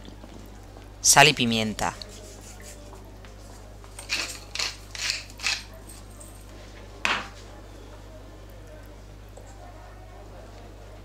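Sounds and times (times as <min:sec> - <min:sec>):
pepper mill grinding: 0:04.0 - 0:06.0.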